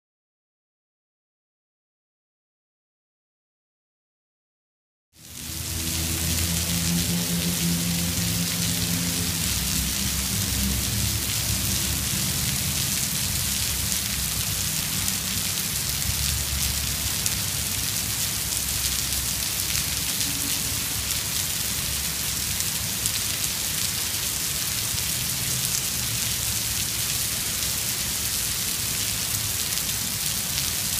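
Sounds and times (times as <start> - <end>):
low rumble: 5.2 - 15.4
heavy rain on asphalt and cars: 5.2 - 30.9.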